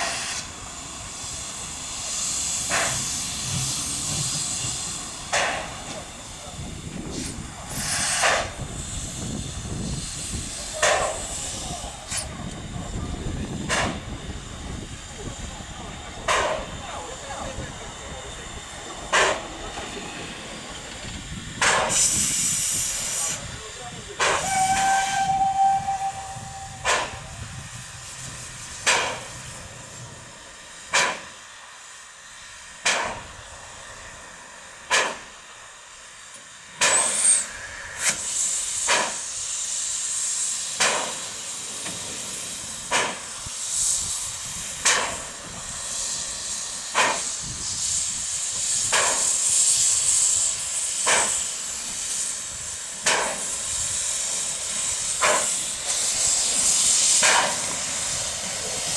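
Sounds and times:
loud blast of steam: 0:00.0 - 0:58.9
steady hiss of steam: 0:00.0 - 0:58.9
steam locomotive puffs: 0:00.0 - 0:58.9
steam locomotive whistle: 0:24.4 - 0:27.4.

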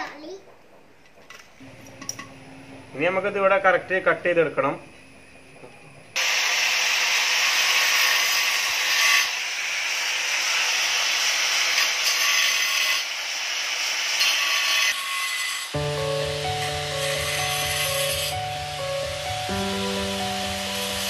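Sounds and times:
angle grinder cutting clay pot: 0:06.2 - 0:21.0.

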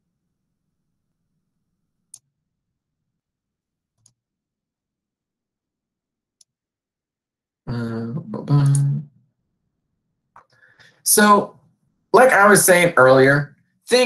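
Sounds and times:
man speaking: 0:11.1 - 0:11.5, 0:12.2 - 0:14.0.

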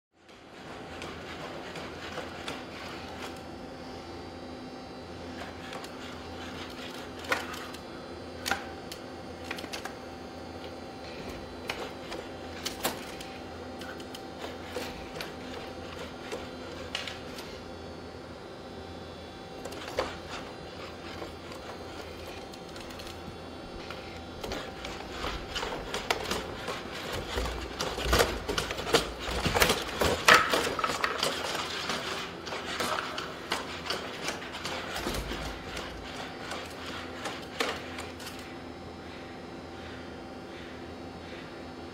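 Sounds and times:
knocks and scrapes: 0:23.8 - 0:38.4.

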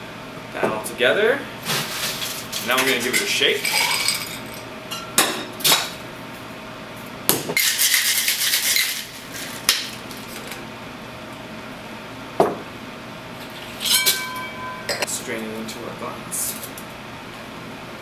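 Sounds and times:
ice rattling in shaker: 0:01.9 - 0:04.6, 0:07.6 - 0:09.6.

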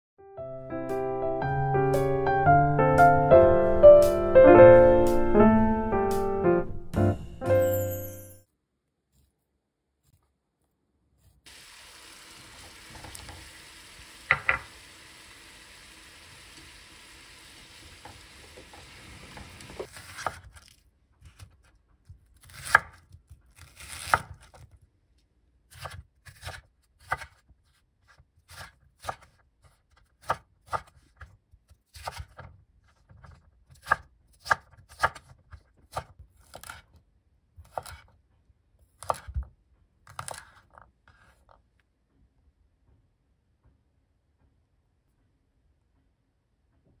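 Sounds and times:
knife chopping on wooden board: 0:18.6 - 0:20.5, 0:22.4 - 0:24.6, 0:25.7 - 0:27.4, 0:28.5 - 0:29.4, 0:30.2 - 0:31.0, 0:31.9 - 0:32.5, 0:33.7 - 0:36.9, 0:37.6 - 0:38.1, 0:39.0 - 0:39.4.

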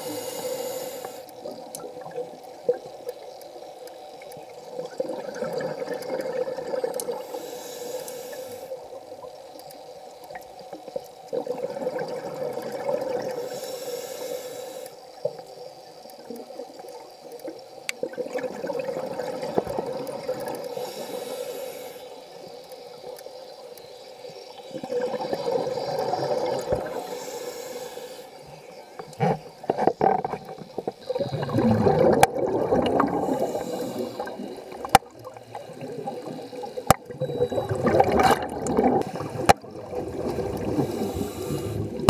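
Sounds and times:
regulator inhale hiss: 0:00.0 - 0:01.6, 0:07.0 - 0:09.9, 0:13.2 - 0:15.4, 0:20.4 - 0:24.7, 0:25.3 - 0:29.7, 0:33.0 - 0:38.3, 0:39.0 - 0:39.7, 0:40.5 - 0:42.0
exhaled bubbles burbling: 0:04.7 - 0:07.2, 0:11.3 - 0:13.4, 0:18.0 - 0:20.7, 0:24.7 - 0:27.0, 0:29.1 - 0:42.0.

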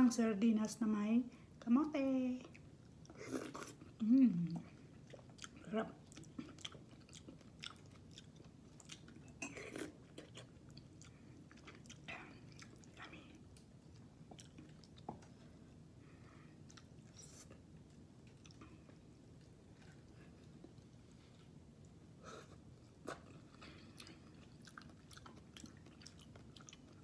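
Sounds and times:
person chewing and eating: 0:02.4 - 0:27.0.

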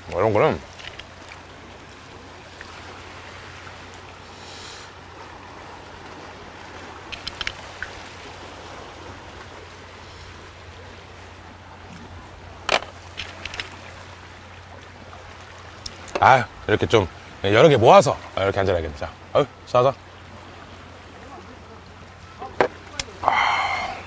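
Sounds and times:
sea water washing against rocks: 0:00.0 - 0:18.5.

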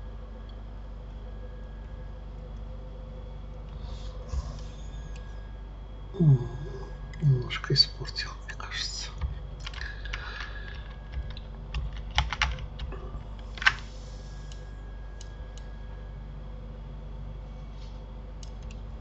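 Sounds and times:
steady low hum: 0:00.0 - 0:19.0
computer keyboard keys clicking: 0:09.2 - 0:13.8, 0:18.4 - 0:18.8.

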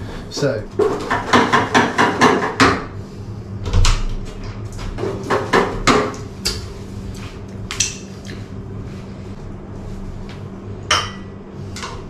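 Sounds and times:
wooden spoon knocking on a pan: 0:00.9 - 0:02.8.

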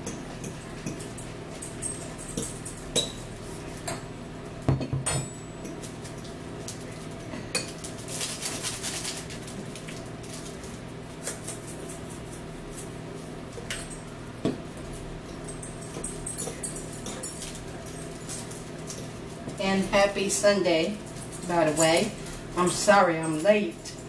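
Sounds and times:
forks clinking against ceramic bowls: 0:00.0 - 0:04.1, 0:04.7 - 0:06.2, 0:07.5 - 0:07.9, 0:13.6 - 0:20.2, 0:20.8 - 0:24.0
steady low hum: 0:00.0 - 0:24.0
tableware knocks: 0:04.7 - 0:05.4.

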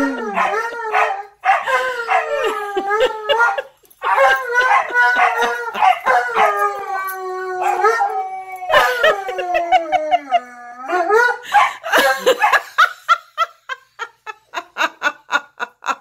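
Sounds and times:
dogs howling: 0:00.0 - 0:12.4
bursts of laughter: 0:11.4 - 0:16.0.

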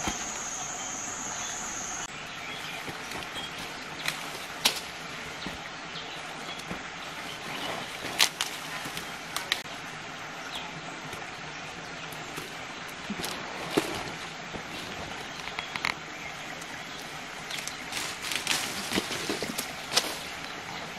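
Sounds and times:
leaves rustling: 0:00.0 - 0:20.9
steady background hiss: 0:00.0 - 0:20.9
fruit stems snapping: 0:04.0 - 0:04.9.

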